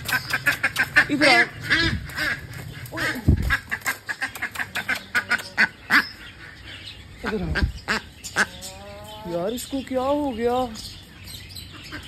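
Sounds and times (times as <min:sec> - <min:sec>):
ducks quacking: 0:00.0 - 0:09.5, 0:11.6 - 0:12.0.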